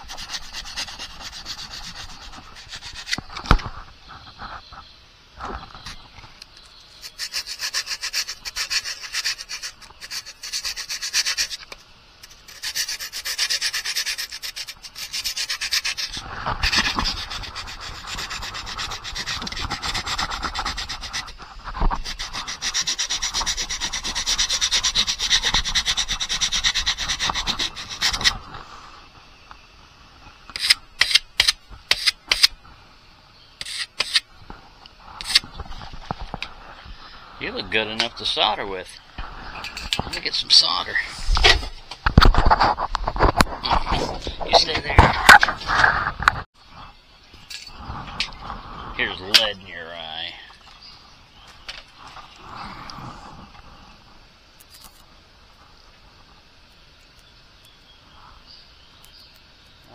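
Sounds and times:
soldering iron scraping on sandpaper: 0:00.0 - 0:03.3, 0:06.9 - 0:28.5, 0:30.5 - 0:32.5, 0:33.6 - 0:34.3, 0:35.2 - 0:35.5, 0:39.6 - 0:41.6.

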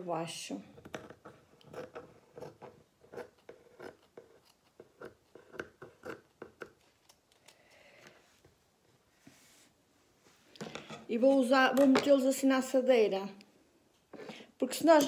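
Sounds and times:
scissors cutting paper: 0:00.8 - 0:07.6.

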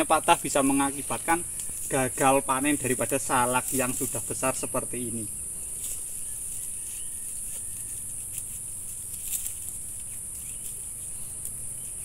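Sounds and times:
insects chorus: 0:00.0 - 0:12.0
hands rustling tying string: 0:01.0 - 0:04.4.

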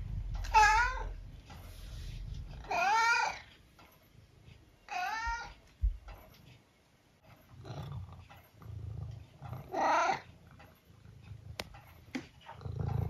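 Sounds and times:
low rumbling: 0:00.0 - 0:01.4
cat meowing: 0:00.4 - 0:01.2, 0:02.6 - 0:03.5, 0:04.9 - 0:05.6, 0:09.7 - 0:10.3.

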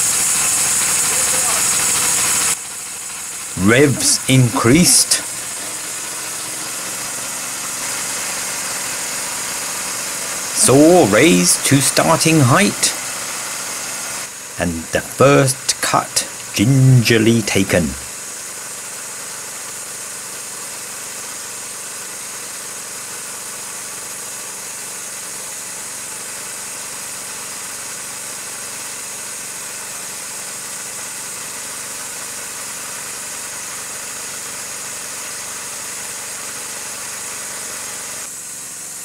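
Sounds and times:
engine droning: 0:00.0 - 0:18.1
saw blade hissing: 0:03.5 - 0:17.9.

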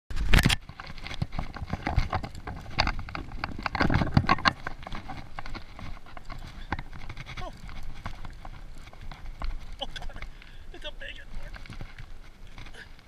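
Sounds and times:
fishing gear clattering: 0:00.3 - 0:13.0.

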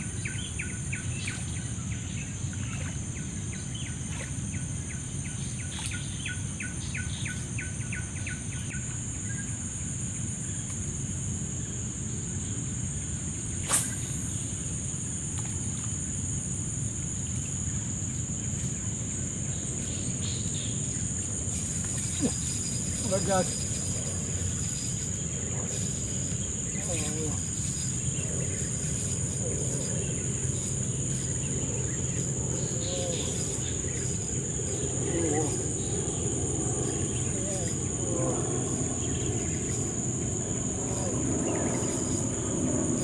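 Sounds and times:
insects buzzing: 0:00.0 - 0:43.0
sharp click: 0:13.6 - 0:14.1.

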